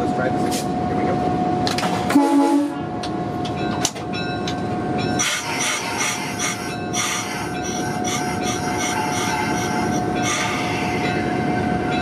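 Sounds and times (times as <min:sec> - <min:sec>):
diesel locomotive engine running: 0:00.0 - 0:12.0
rail noise: 0:00.0 - 0:12.0
wheels squealing on rail: 0:05.0 - 0:12.0.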